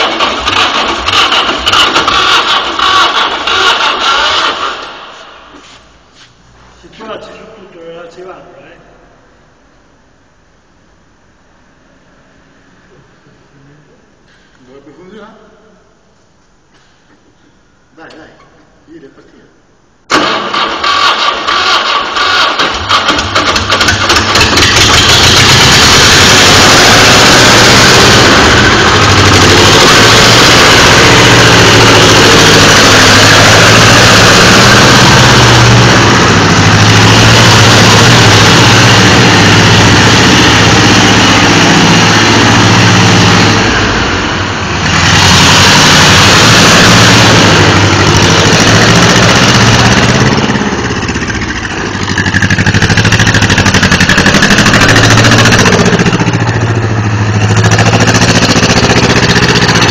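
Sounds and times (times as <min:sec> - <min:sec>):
tractor engine running: 0:00.0 - 0:05.0, 0:20.1 - 0:59.9.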